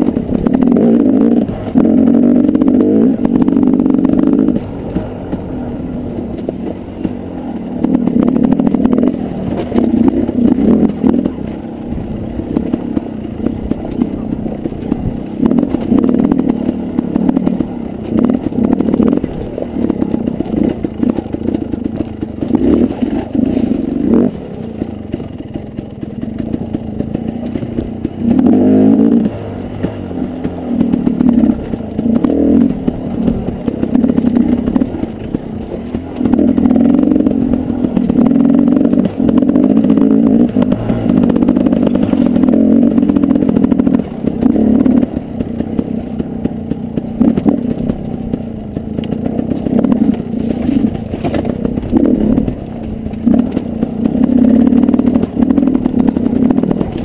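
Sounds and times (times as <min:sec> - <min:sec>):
bike clattering over stones: 0:00.0 - 0:57.0
dirt bike engine revving: 0:00.0 - 0:57.0.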